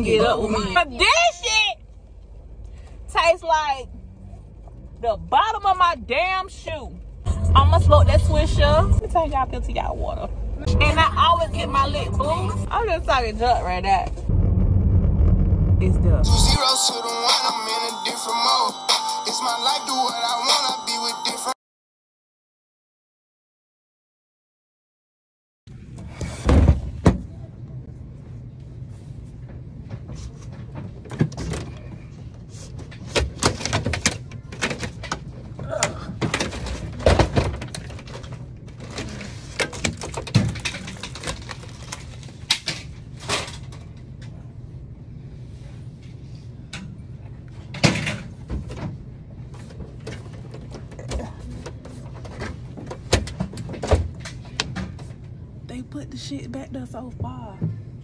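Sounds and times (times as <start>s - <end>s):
steady low hum: 6.8s - 16.6s.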